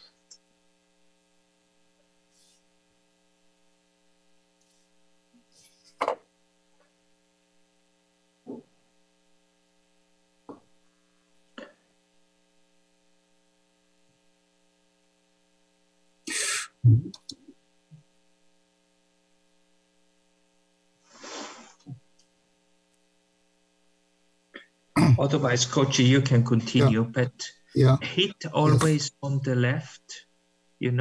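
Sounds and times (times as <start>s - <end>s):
low mains hum: 0.0s - 31.0s
hiss: 16.3s - 16.7s, 21.1s - 21.8s.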